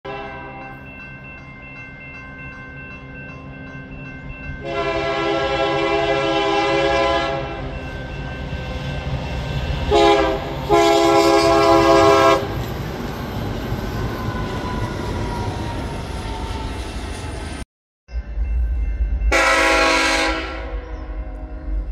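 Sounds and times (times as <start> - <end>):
locomotive air horn blasts: 0.1 - 0.6, 4.6 - 7.7, 9.9 - 12.5, 19.3 - 20.9
crossing warning bell ringing: 0.1 - 16.6, 18.1 - 21.9.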